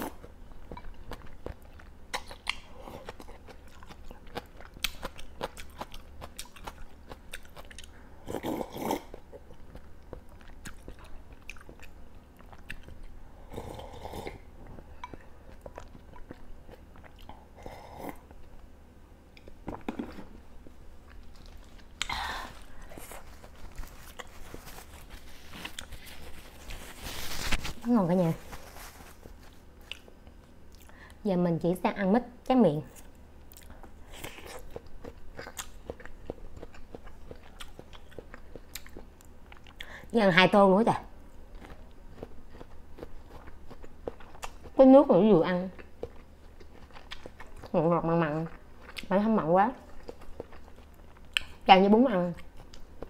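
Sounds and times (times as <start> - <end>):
chewing with wet mouth clicks: 0.7 - 8.0, 8.8 - 13.2, 14.6 - 17.4, 29.8 - 31.0, 33.5 - 39.9, 41.5 - 44.7, 45.7 - 49.2, 49.8 - 51.7, 52.3 - 53.0.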